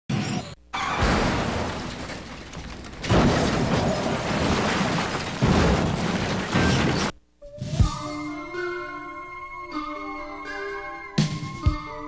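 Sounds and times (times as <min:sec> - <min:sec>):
vehicle crash noise: 0:00.1 - 0:07.2.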